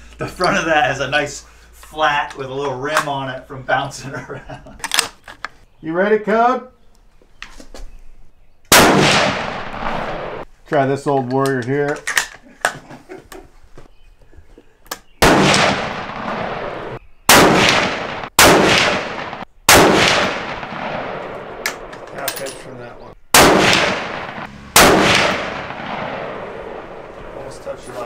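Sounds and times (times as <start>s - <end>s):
rifle shots echoing: 8.7s - 10.5s, 15.2s - 22.2s, 23.3s - 27.9s.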